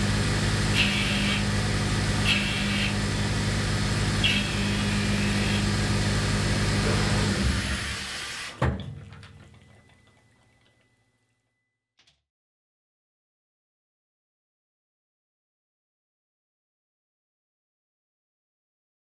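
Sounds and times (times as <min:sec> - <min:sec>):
coolant spray: 0:00.0 - 0:08.6
lathe motor and pump hum: 0:00.0 - 0:10.4
higher-pitched machine bursts: 0:00.7 - 0:03.2, 0:04.2 - 0:05.8.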